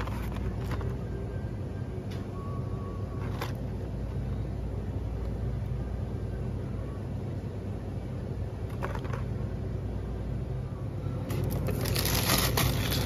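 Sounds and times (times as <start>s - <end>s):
rustling and handling of goods: 0.0s - 4.4s, 8.5s - 9.6s, 11.1s - 13.0s
low shop hum: 0.0s - 13.0s.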